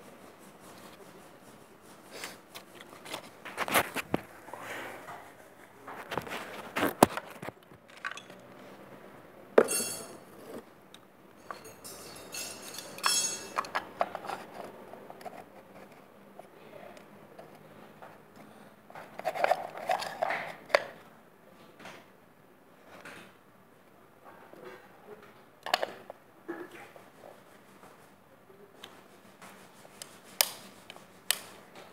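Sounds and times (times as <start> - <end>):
metal parts clinking and knocking: 9.6 - 10.2, 11.4 - 14.3.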